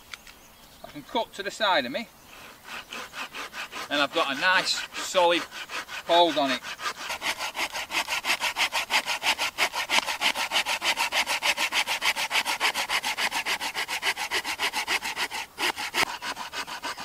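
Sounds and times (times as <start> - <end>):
hand saw cutting wood: 2.3 - 17.0.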